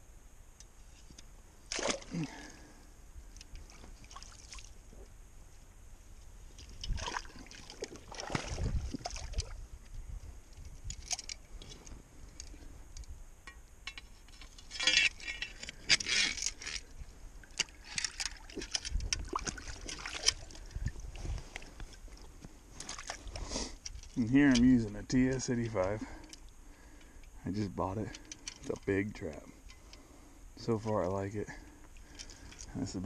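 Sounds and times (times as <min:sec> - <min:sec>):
muddy water sloshing and splashing: 0:01.7 - 0:02.7, 0:03.6 - 0:04.8, 0:06.5 - 0:09.7, 0:14.7 - 0:24.4.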